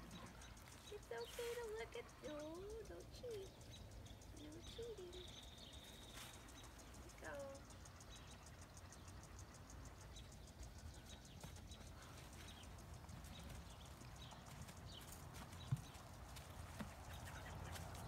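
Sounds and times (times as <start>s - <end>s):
hoof thud: 11.3s - 18.0s.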